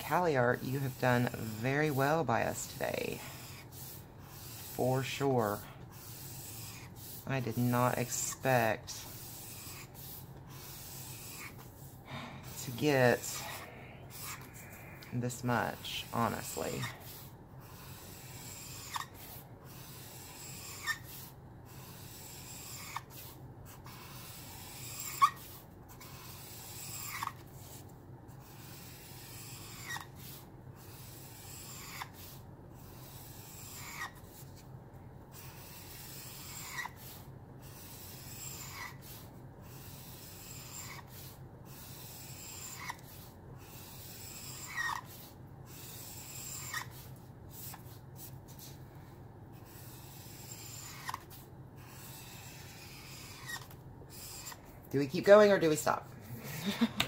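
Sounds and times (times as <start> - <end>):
felt marker scratching on paper: 0.0 - 48.9, 49.5 - 55.8
marker squeak: 5.4 - 7.7, 9.1 - 11.8, 16.5 - 19.3, 19.9 - 27.8, 28.6 - 30.4, 31.3 - 32.4, 33.1 - 34.4, 35.4 - 37.2, 37.8 - 39.3, 39.9 - 47.9, 49.7 - 54.6.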